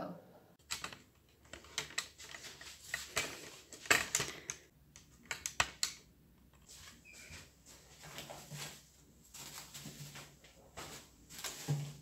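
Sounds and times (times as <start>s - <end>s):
objects clicking and tapping: 0.6s - 6.7s.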